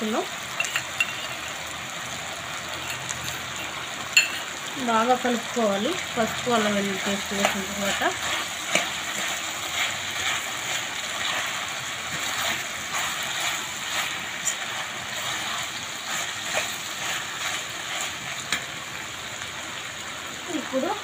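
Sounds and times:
vegetables sizzling in oil: 0:00.0 - 0:21.0
spatula tapping and scraping a pan: 0:07.3 - 0:18.8.

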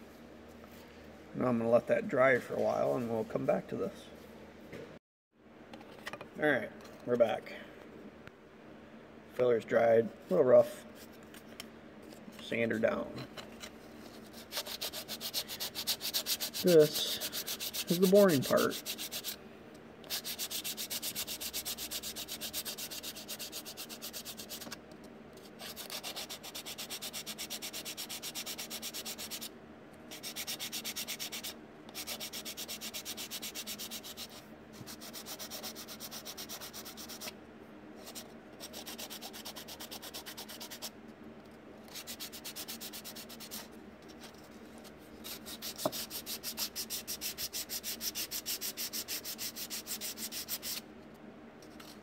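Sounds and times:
sanding block rubbing filler: 0:14.3 - 0:19.4, 0:20.1 - 0:24.6, 0:25.6 - 0:29.5, 0:30.1 - 0:37.3, 0:45.3 - 0:50.8.

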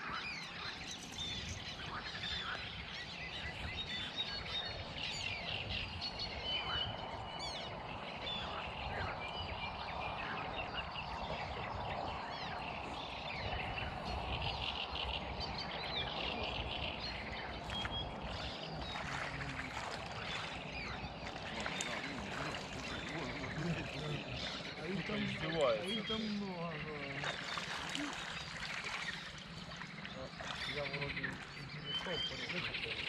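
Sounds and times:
small birds chirping: 0:00.0 - 0:33.0
steady low rumble: 0:00.2 - 0:25.8.

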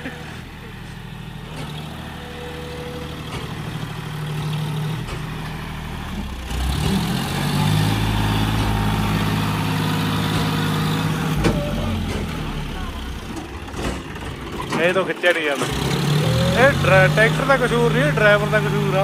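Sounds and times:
tractor diesel engine labouring: 0:00.0 - 0:19.0.

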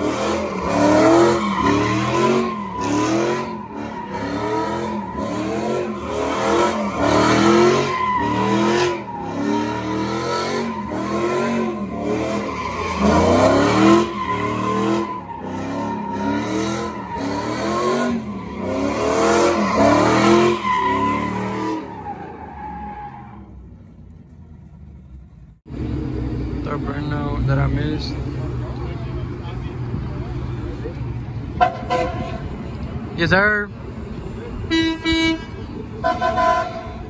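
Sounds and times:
truck engine revving: 0:00.0 - 0:23.9.

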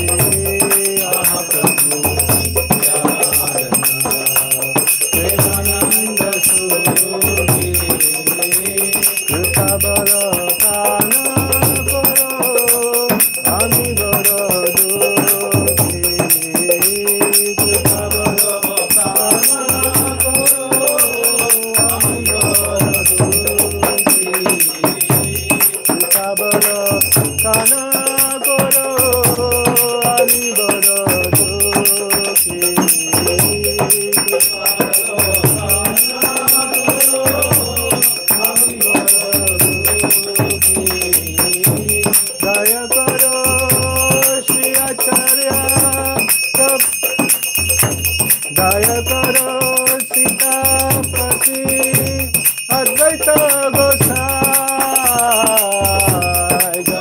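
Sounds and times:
drum beat: 0:00.0 - 0:57.0
hand bell ringing: 0:00.0 - 0:57.0
jingling cymbals: 0:00.0 - 0:57.0.

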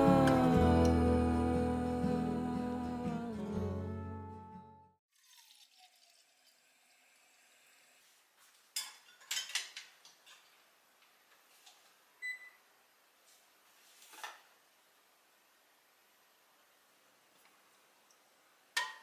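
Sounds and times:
dishes clinking: 0:08.8 - 0:10.5, 0:18.8 - 0:19.0.

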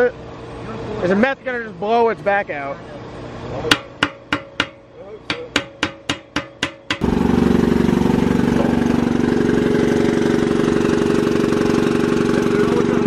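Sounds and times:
engine idling: 0:02.3 - 0:13.0
hammer blows on metal: 0:03.6 - 0:07.2.

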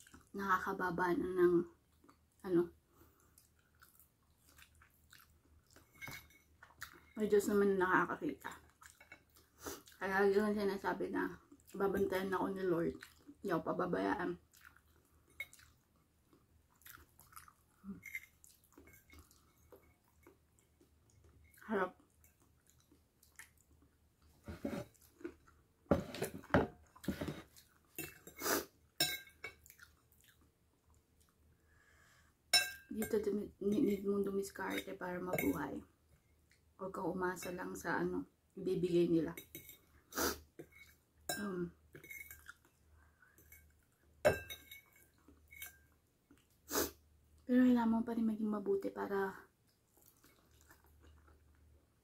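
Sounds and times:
chewing and mouth sounds: 0:03.0 - 0:07.2, 0:08.5 - 0:10.0, 0:12.8 - 0:13.4, 0:14.4 - 0:25.7, 0:29.5 - 0:31.4, 0:41.9 - 0:44.1, 0:49.6 - 0:51.8
fork clinking against a bowl: 0:29.0 - 0:29.6, 0:32.6 - 0:33.1, 0:44.3 - 0:45.8.

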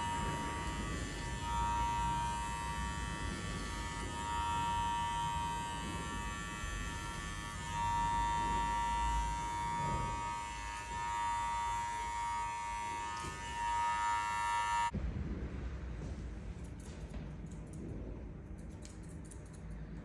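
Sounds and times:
hair clipper buzzing: 0:00.0 - 0:14.9.

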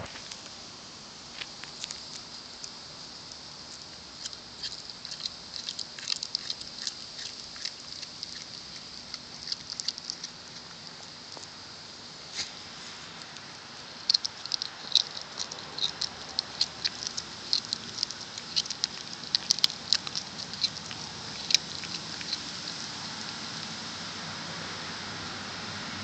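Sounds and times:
cat crunching bones: 0:01.3 - 0:11.6, 0:13.2 - 0:23.8.

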